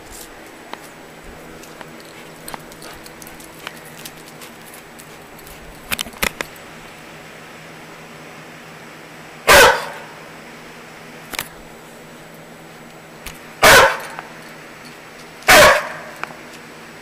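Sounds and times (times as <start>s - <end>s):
dog barking: 9.5s - 10.2s, 13.6s - 14.2s, 15.5s - 16.2s.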